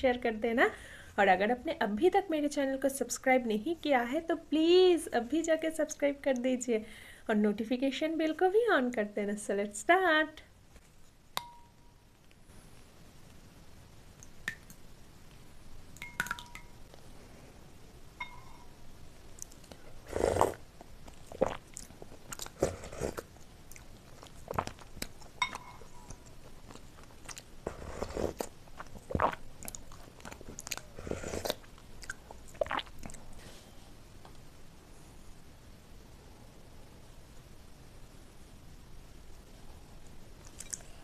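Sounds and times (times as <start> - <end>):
soup dripping into bowl: 16.0 - 16.8, 25.4 - 26.0
spoon clinking glass bowl: 16.0 - 16.8, 18.2 - 18.7, 25.4 - 25.9
chewing with wet mouth clicks: 19.3 - 19.8, 20.8 - 27.6, 28.4 - 33.3, 40.4 - 41.0.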